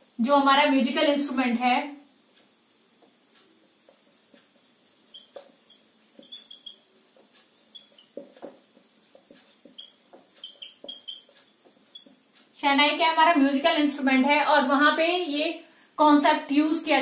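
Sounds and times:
marker squeaking on whiteboard: 0:03.0 - 0:12.5.

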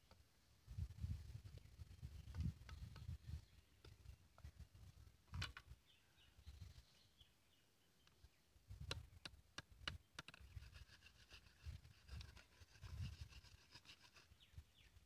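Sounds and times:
blade scraping bamboo: 0:10.2 - 0:14.5.

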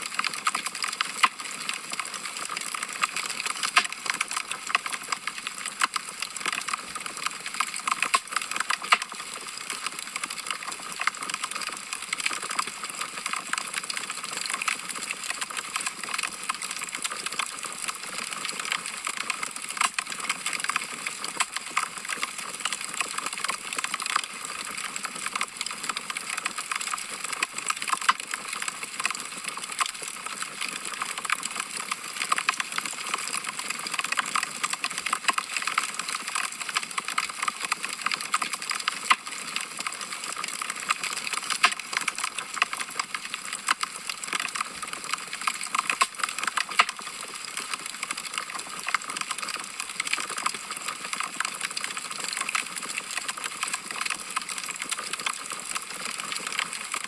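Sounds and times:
logs crackling in fireplace: 0:00.2 - 0:09.5, 0:45.4 - 0:47.8.

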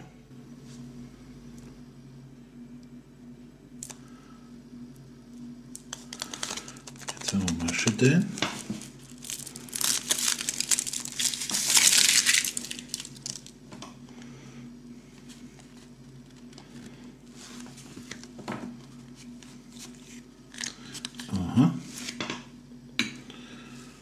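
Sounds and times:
chocolate shell cracking: 0:05.7 - 0:08.0, 0:09.1 - 0:13.6
foil wrapper crinkling: 0:05.8 - 0:13.6, 0:19.8 - 0:21.3.

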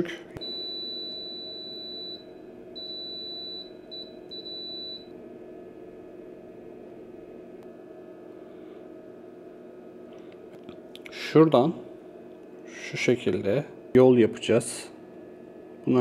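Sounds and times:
faint steady hum: 0:00.0 - 0:16.0
multimeter beeps: 0:00.4 - 0:05.1.

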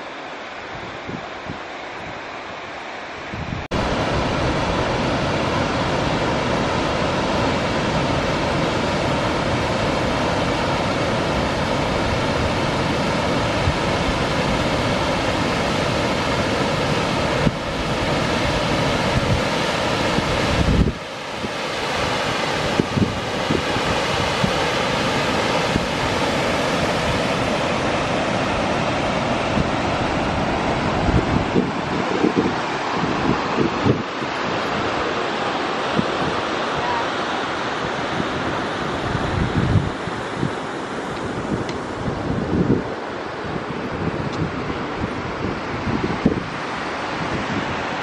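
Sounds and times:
waterfall cascading over rocks: 0:00.0 - 0:39.2.

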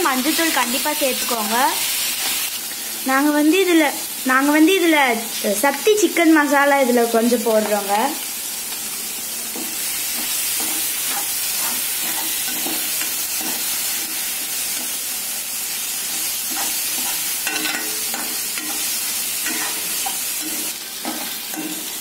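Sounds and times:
vegetables sizzling in oil: 0:00.0 - 0:22.0
metal spoon scraping pan: 0:09.5 - 0:15.0, 0:16.1 - 0:22.0.

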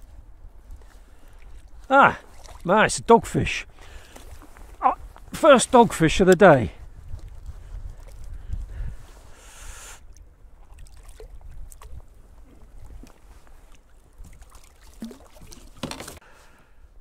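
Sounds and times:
wind rumble on microphone: 0:00.0 - 0:02.4, 0:04.3 - 0:14.5
water lapping against kayak hull: 0:00.5 - 0:02.7, 0:03.5 - 0:16.4.

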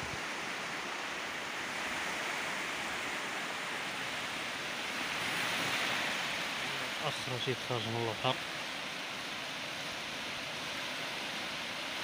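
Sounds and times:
ocean surf on beach: 0:00.0 - 0:12.0.

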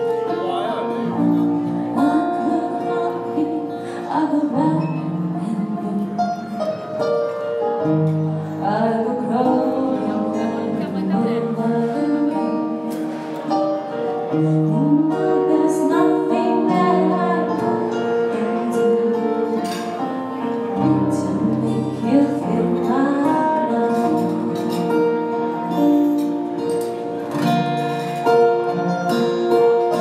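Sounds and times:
electric keyboard and guitar: 0:00.0 - 0:30.0
woman singing into a microphone: 0:01.5 - 0:07.2, 0:07.8 - 0:13.1, 0:14.3 - 0:25.8.

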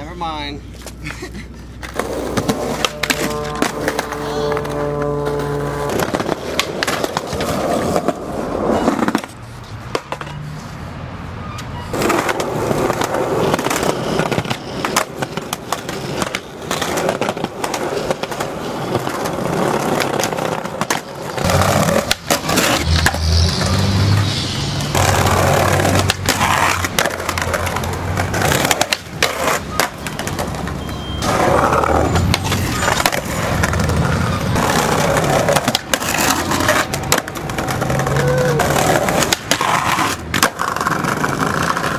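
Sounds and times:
skateboard wheels rolling on concrete: 0:00.0 - 0:41.9
skateboard clacks and landings: 0:01.8 - 0:10.4.

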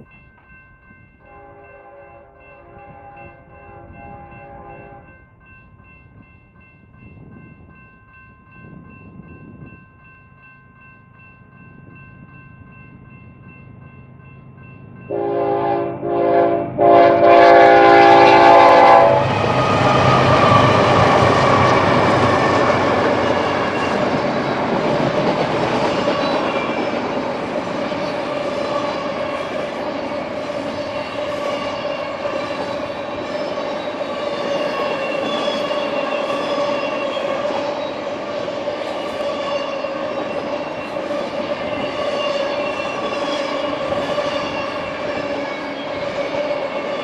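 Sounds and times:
locomotive horn blasts: 0:01.2 - 0:05.1, 0:15.1 - 0:19.4
train wheels on rails: 0:11.5 - 0:47.0.

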